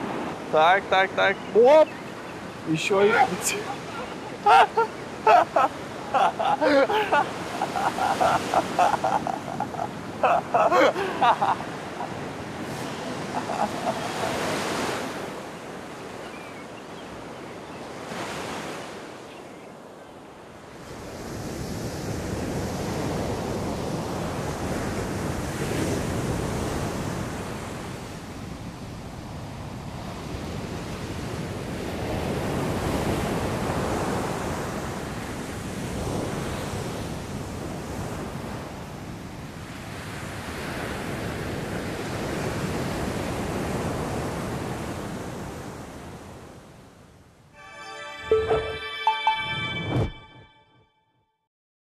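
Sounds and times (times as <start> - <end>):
sea surf breaking: 0.0 - 16.2
wind: 0.0 - 50.6.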